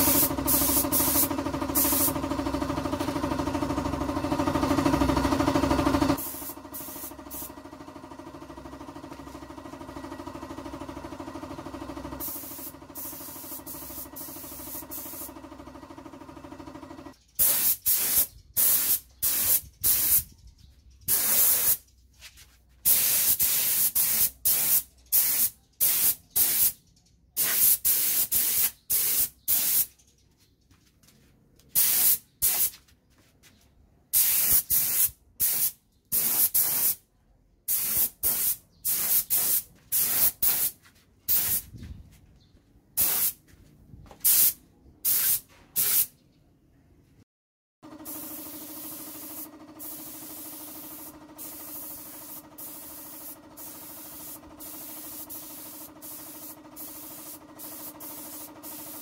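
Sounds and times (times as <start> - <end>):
spray gun hissing bursts: 0.0 - 2.2, 6.1 - 7.5, 12.2 - 15.4, 17.4 - 20.2, 21.1 - 21.8, 22.9 - 26.7, 27.4 - 29.9, 31.8 - 32.7, 34.2 - 37.0, 37.7 - 41.6, 43.0 - 43.4, 44.2 - 46.1, 48.0 - 59.0.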